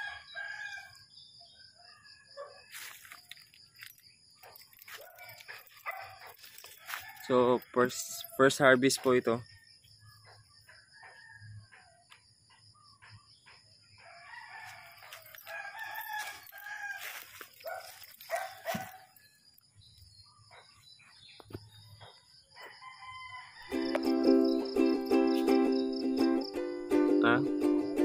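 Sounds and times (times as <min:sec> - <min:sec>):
rooster crowing: 0:00.0 - 0:01.0, 0:05.0 - 0:08.5, 0:10.8 - 0:12.1, 0:14.0 - 0:19.2, 0:22.6 - 0:24.5.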